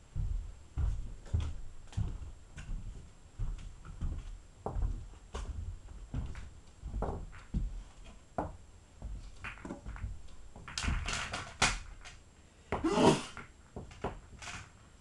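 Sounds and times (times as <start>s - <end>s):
soft thuds: 0.0s - 11.1s
pool balls knocking and clacking: 7.0s - 12.2s
pool balls rattling: 9.2s - 12.2s.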